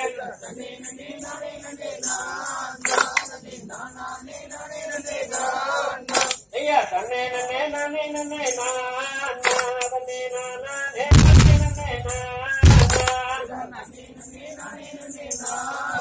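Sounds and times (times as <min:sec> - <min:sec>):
sharp claps: 0:11.1 - 0:13.4
folk song singing: 0:11.1 - 0:13.5.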